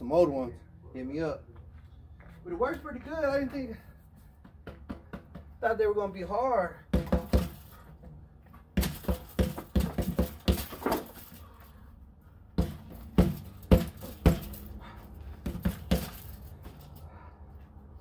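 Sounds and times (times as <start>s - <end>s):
fists punching tires: 6.8s - 7.9s, 8.6s - 11.4s, 12.5s - 16.8s.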